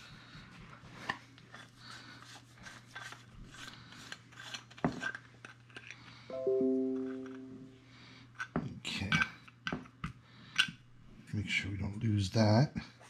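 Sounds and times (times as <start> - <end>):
clear ringing note: 6.3 - 7.9.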